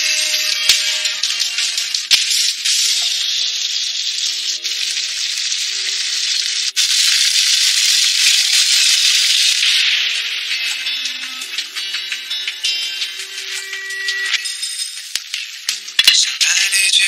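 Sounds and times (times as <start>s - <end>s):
faint background music: 0.0s - 17.0s
liquid sizzling in hot oil: 2.3s - 10.8s
water pouring into pan: 4.2s - 9.7s.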